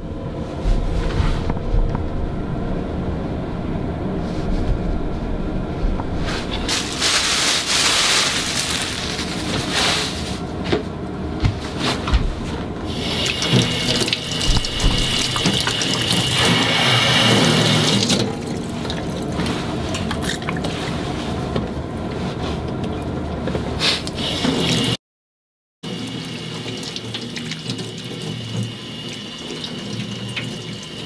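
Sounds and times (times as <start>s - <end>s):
tap water running into metal sink: 12.9s - 19.4s, 25.9s - 31.0s.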